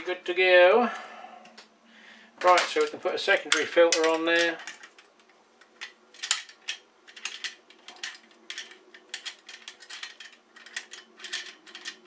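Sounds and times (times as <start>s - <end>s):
metal clamp fittings clicking: 2.5s - 12.0s.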